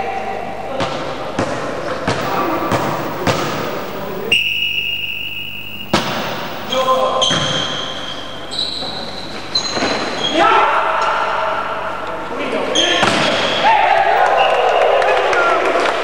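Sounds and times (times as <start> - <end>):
steady high tone: 2.2 - 7.0.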